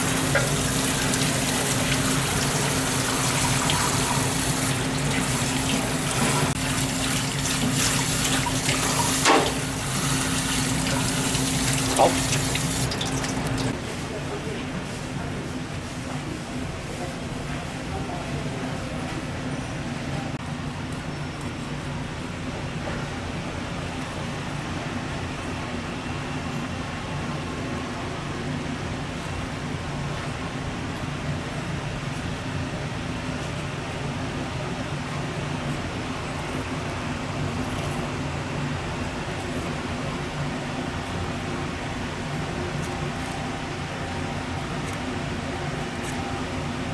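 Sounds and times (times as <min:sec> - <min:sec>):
tap water running into sink: 0:00.0 - 0:13.7
steady mechanical hum: 0:00.0 - 0:46.9.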